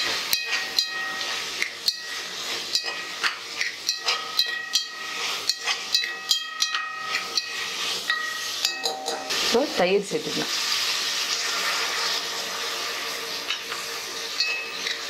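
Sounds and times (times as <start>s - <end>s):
food sizzling in oil: 0.0s - 15.0s
spatula knocking metal pot: 0.3s - 9.4s.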